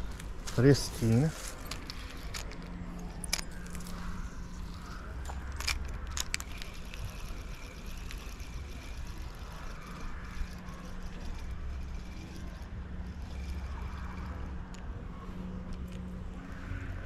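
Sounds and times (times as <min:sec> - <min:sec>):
distant road traffic hum: 0:00.0 - 0:17.0
fishing reel clicks: 0:01.7 - 0:14.9.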